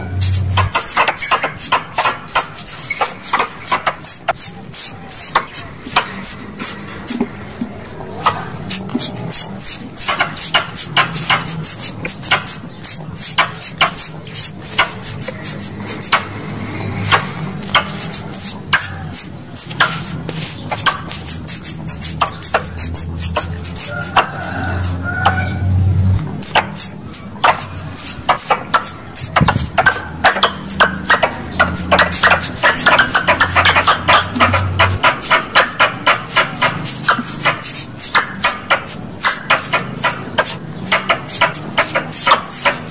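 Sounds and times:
squirrel chirps: 0.0 - 42.9.

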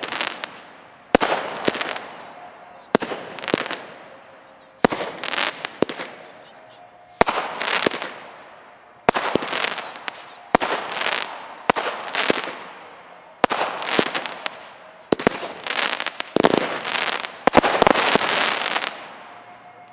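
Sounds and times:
firework crackling hiss: 0.0 - 2.3, 4.8 - 6.3, 7.2 - 19.1
firework bangs: 0.0 - 19.9.

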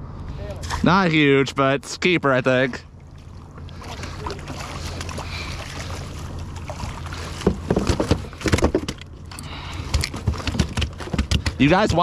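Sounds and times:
wind: 0.0 - 12.0
water noise: 0.6 - 12.0
knocks and clatter: 7.4 - 9.1, 9.9 - 12.0.

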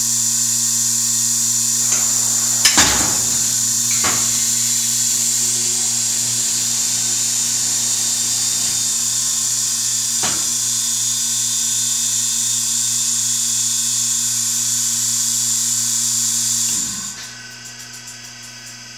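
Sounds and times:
vacuum forming machine humming: 0.0 - 18.9.

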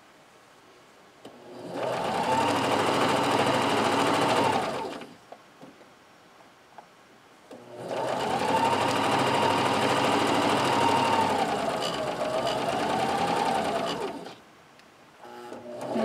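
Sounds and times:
sewing machine stitching: 1.4 - 5.2, 7.5 - 14.4, 15.2 - 16.0.

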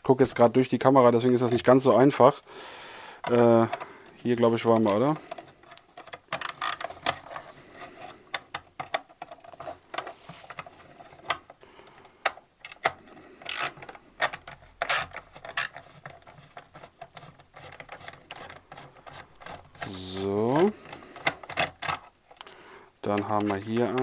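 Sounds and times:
screwdriver clicking and scraping: 4.8 - 11.6, 12.2 - 20.0.

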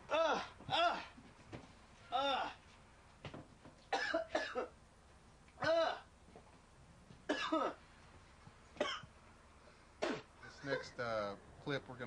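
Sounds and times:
man coughing: 3.9 - 4.8, 7.3 - 7.8, 8.8 - 9.0.

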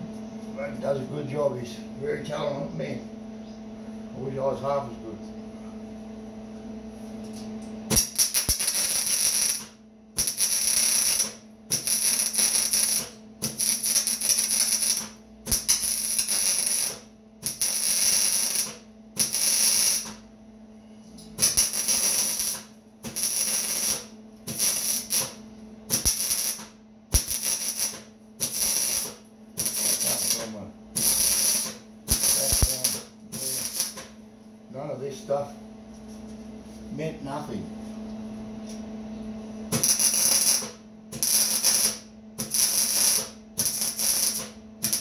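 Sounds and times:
low steady hum: 0.0 - 45.0
arc welder crackling: 7.2 - 20.3, 21.2 - 34.2, 39.7 - 45.0.

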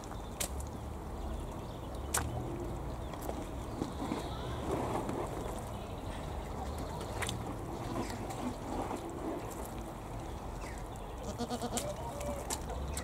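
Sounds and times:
goat bleating: 11.2 - 12.4.

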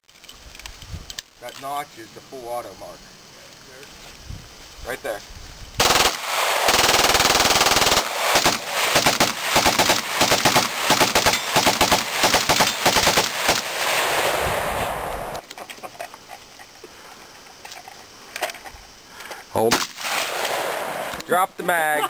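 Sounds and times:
pistol shots: 5.8 - 14.1
automatic rifle gunfire: 5.8 - 14.2.

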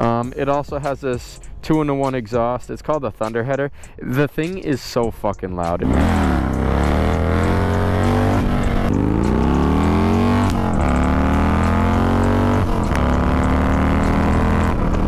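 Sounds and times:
motorcycle engine revving: 5.8 - 15.0.

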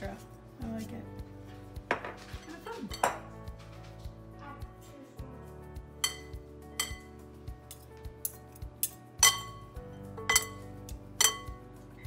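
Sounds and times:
metal utensil clinking on glass bowl: 1.9 - 3.3, 6.0 - 7.1, 7.7 - 11.6.

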